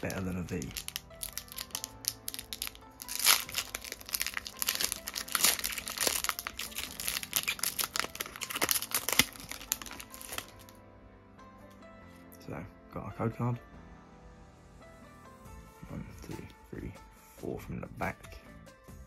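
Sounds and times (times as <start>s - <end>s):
foil wrapper crinkling and tearing: 0.0s - 10.7s.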